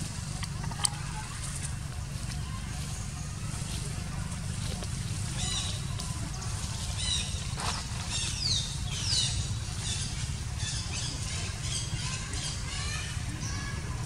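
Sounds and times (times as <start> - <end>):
birds chirping: 0.0 - 14.0
steady low rumble: 0.0 - 14.0.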